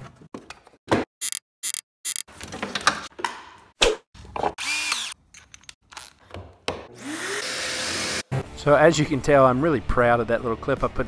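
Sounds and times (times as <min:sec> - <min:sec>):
drill whirring bursts: 0:04.6 - 0:05.2, 0:07.0 - 0:08.2.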